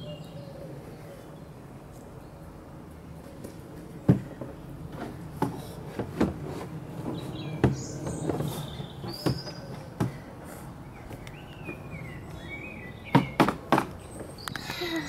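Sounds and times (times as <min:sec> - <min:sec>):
small birds chirping: 0:00.0 - 0:02.6, 0:06.8 - 0:15.0.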